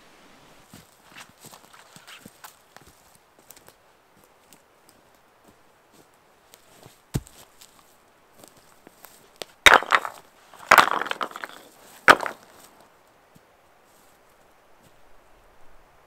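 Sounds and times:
axe chopping wood: 7.2s - 7.4s, 9.7s - 12.4s
clatter of wood: 9.7s - 12.5s.

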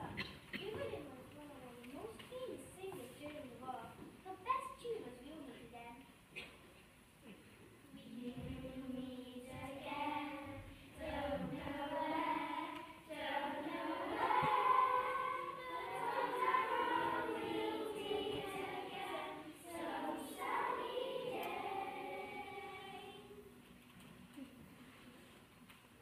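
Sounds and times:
children singing together: 8.1s - 23.5s.

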